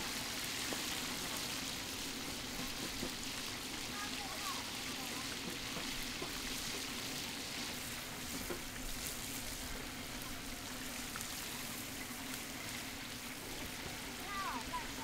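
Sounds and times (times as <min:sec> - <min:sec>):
deep-frying sizzle in hot oil: 0:00.0 - 0:15.0.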